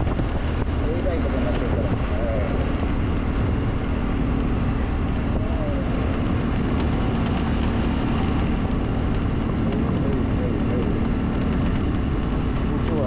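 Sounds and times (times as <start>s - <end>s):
motorbike engine running: 0.0s - 13.0s
wind rumbling on microphone: 0.0s - 13.0s.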